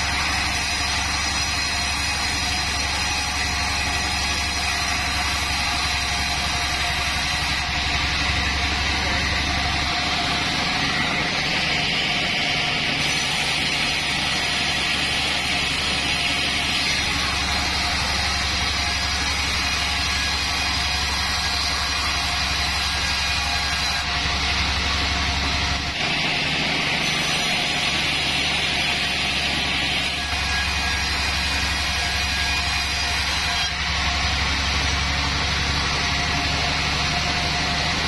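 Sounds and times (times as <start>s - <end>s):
band sawmill humming: 0.0s - 38.0s.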